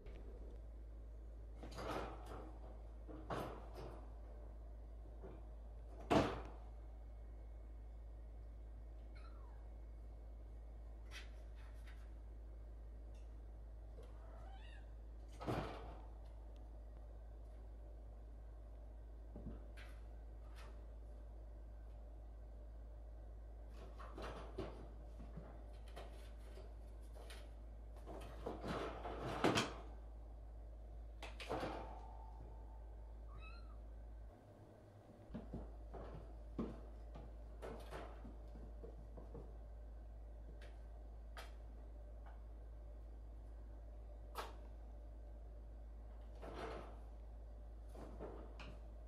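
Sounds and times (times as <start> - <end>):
wire cage thump and rattle: 1.6 - 4.2, 15.3 - 16.1, 23.7 - 26.5, 27.2 - 29.9, 31.3 - 32.5, 46.4 - 47.1
cat meowing: 14.2 - 14.9, 33.3 - 33.8.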